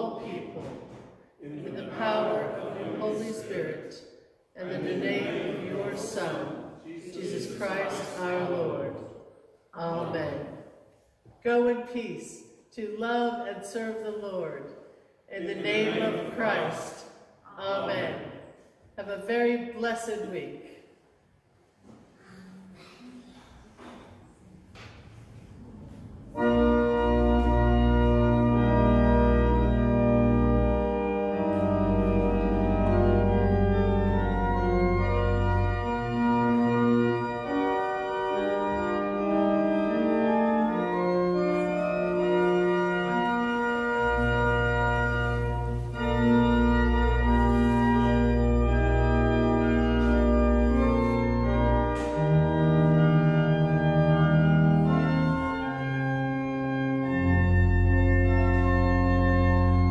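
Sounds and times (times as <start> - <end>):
church organ chords: 0.0 - 10.7, 15.3 - 18.5, 25.5 - 59.9
deep organ pedal bass: 26.2 - 59.9.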